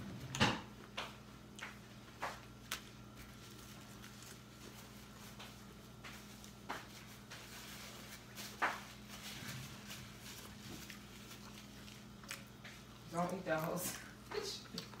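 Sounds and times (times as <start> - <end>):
low electrical hum: 0.0 - 15.0
mouth clicks and smacks eating: 10.9 - 15.0.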